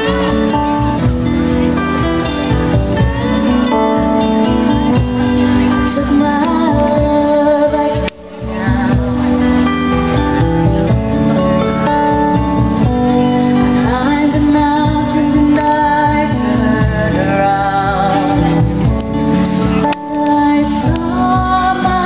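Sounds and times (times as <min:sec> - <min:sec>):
electric guitar: 0:00.0 - 0:22.0
keyboard: 0:00.0 - 0:22.0
strummed acoustic guitars: 0:00.0 - 0:22.0
woman singing: 0:05.5 - 0:09.8, 0:13.6 - 0:19.0, 0:19.8 - 0:22.0.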